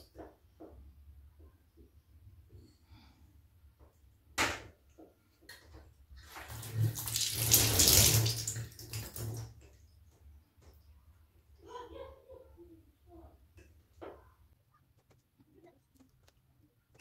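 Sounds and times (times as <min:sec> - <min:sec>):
water stream splashing into bathtub: 0:05.5 - 0:09.8.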